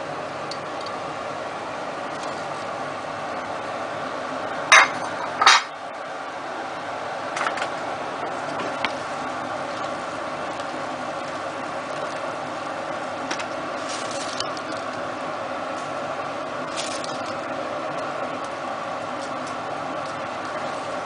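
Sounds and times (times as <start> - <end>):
water boiling in a pot: 0.0 - 21.0
kitchenware clattering: 4.7 - 5.7.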